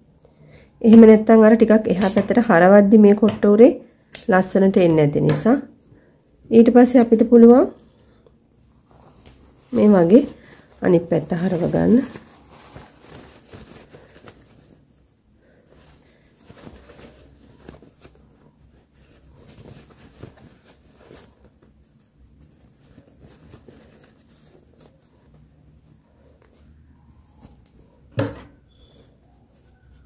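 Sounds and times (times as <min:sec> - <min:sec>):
fabric rustling and crumpling: 0:06.7 - 0:30.0.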